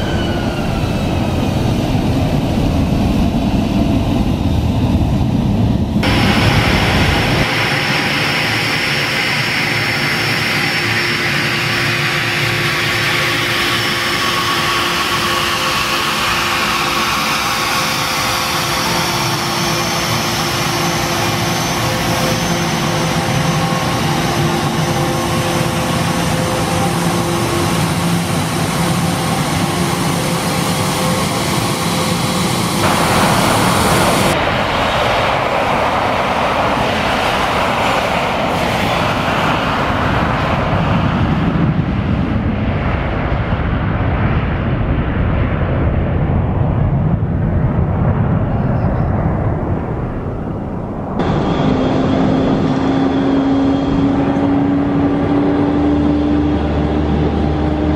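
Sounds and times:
jet engines taxiing: 0.0s - 57.9s.

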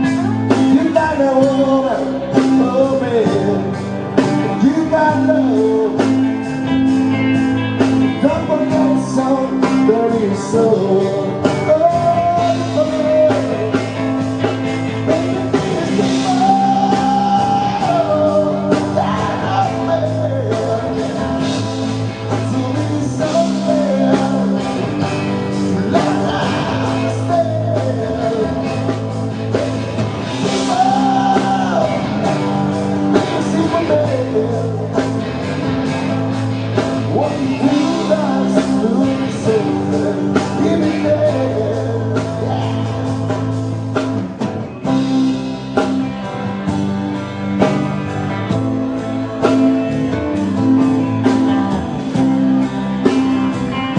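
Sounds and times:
person singing: 0.0s - 7.1s, 7.8s - 35.3s, 36.8s - 43.5s
rock band playing live: 0.0s - 53.9s.

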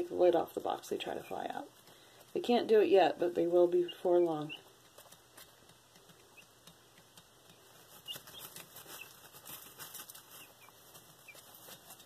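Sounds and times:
chicks pecking at a feeder: 0.0s - 12.0s
chicks scratching in wood shavings: 0.0s - 12.0s
chicks peeping softly: 3.4s - 12.0s.

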